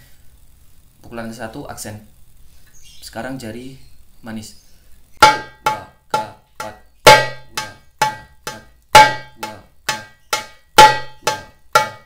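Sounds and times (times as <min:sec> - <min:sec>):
darbuka finger strokes: 0:05.2 - 0:12.0.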